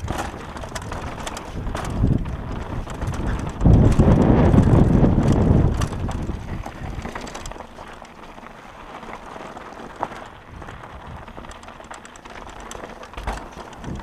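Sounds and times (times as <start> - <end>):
wind buffeting microphone: 0.0 - 7.6, 10.3 - 11.6, 13.7 - 14.0
small rattles and clicks: 0.0 - 14.0
tyres crunching over stones: 0.0 - 14.0.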